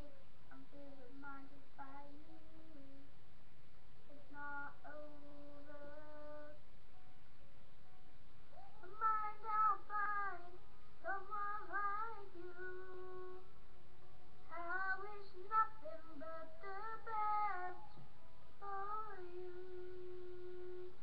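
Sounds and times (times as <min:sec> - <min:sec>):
boy singing unaccompanied: 0:00.0 - 0:03.0, 0:04.1 - 0:06.6, 0:08.6 - 0:13.4, 0:14.5 - 0:18.0, 0:18.6 - 0:21.0.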